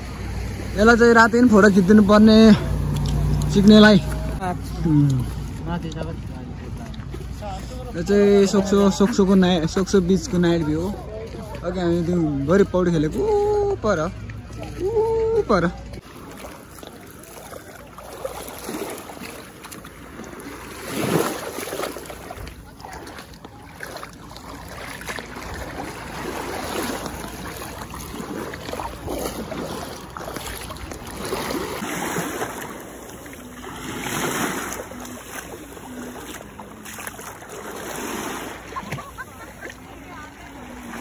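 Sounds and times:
sea waves washing onto beach: 0:00.0 - 0:12.2, 0:13.0 - 0:41.0.

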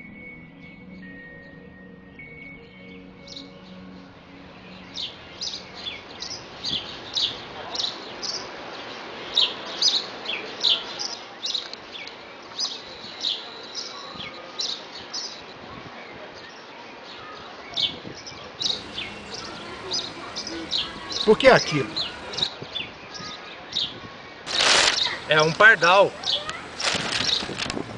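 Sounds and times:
sparrow chirping: 0:04.9 - 0:11.7, 0:12.6 - 0:15.4, 0:17.2 - 0:27.5
outdoor hiss: 0:18.6 - 0:23.2, 0:24.5 - 0:27.9.

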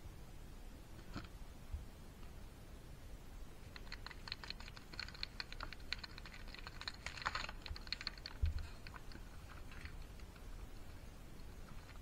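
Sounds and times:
shells scratching and tapping: 0:03.7 - 0:12.0.

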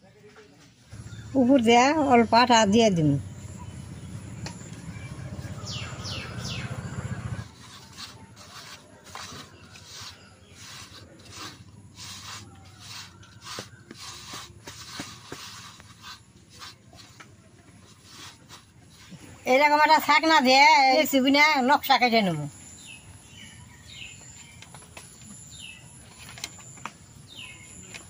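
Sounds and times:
fingers rubbing dough balls: 0:06.7 - 0:20.4.

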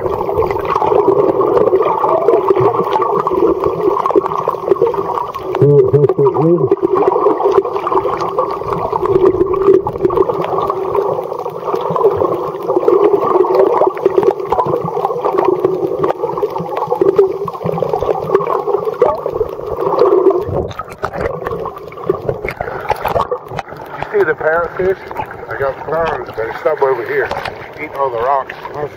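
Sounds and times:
muffled underwater bubbling rush: 0:00.0 - 0:28.9.

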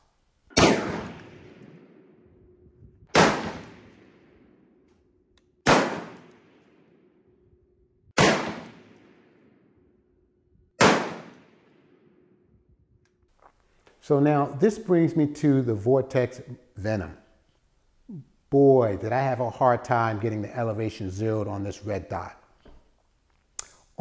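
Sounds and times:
rifle shots with echo: 0:00.5 - 0:02.2, 0:03.1 - 0:04.6, 0:05.6 - 0:07.1, 0:08.2 - 0:09.7, 0:10.8 - 0:12.2.

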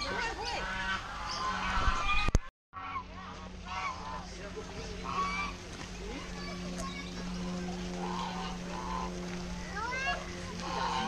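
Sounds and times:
geese honking: 0:00.0 - 0:11.0
people chattering: 0:03.1 - 0:11.0.

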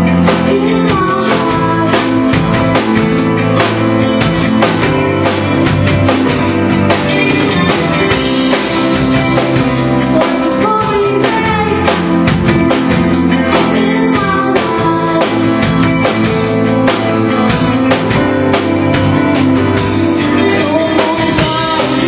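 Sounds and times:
drum kit beat: 0:00.0 - 0:22.0
guitars and bass: 0:00.0 - 0:22.0
woman singing: 0:00.2 - 0:02.7, 0:10.0 - 0:12.2, 0:13.3 - 0:16.1, 0:20.2 - 0:22.0.

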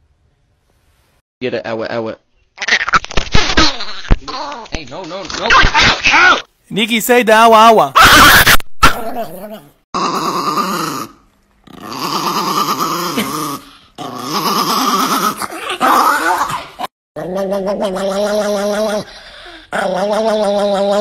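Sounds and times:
small dog growl-like vocalizing: 0:10.0 - 0:21.0.

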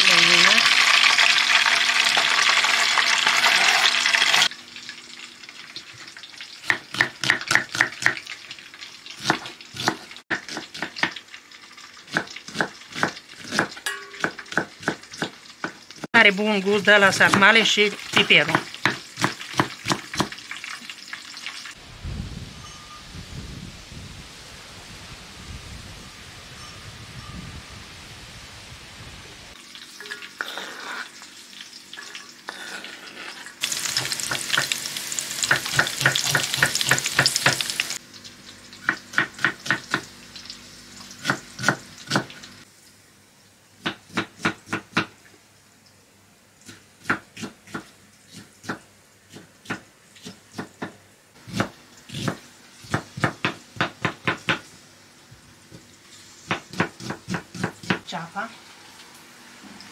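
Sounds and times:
food sizzling in a pan: 0:00.0 - 0:21.8, 0:28.3 - 0:43.1, 0:51.4 - 0:59.9.

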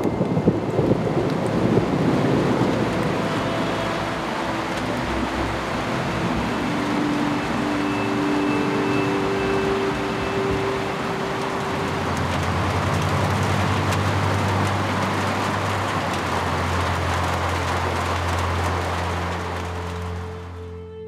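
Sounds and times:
heavy rain pouring: 0:00.0 - 0:21.0.

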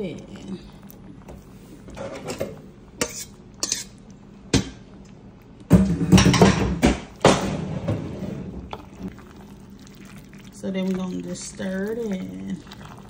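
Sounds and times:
cookware knocking and clattering: 0:05.7 - 0:08.0.

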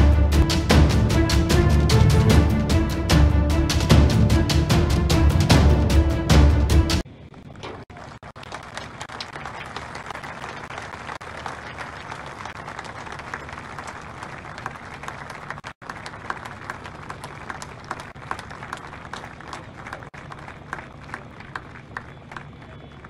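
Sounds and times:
group of people clapping: 0:07.6 - 0:23.0.

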